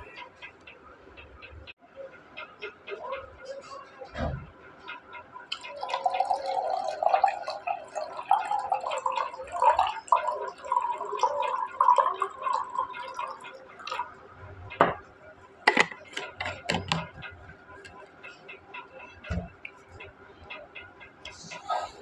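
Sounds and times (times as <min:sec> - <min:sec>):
water glugging into glass: 0:05.5 - 0:14.1.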